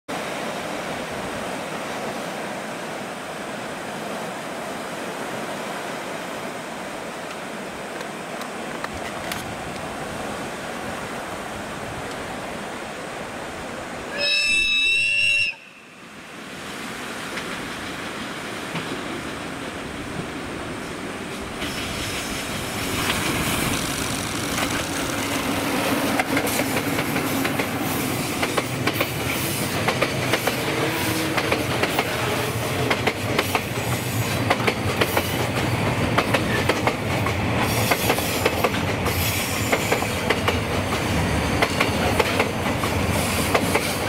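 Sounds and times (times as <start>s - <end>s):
train horn blast: 14.1s - 16.1s, 30.6s - 32.9s
steady rushing noise: 16.2s - 44.0s.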